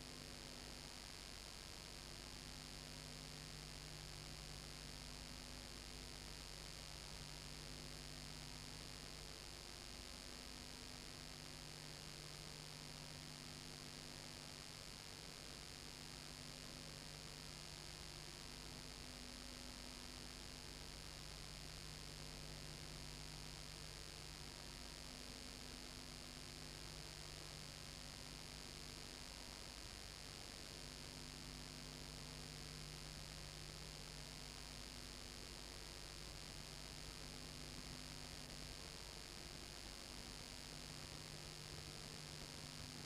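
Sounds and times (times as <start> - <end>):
low mains hum: 0.0 - 43.0.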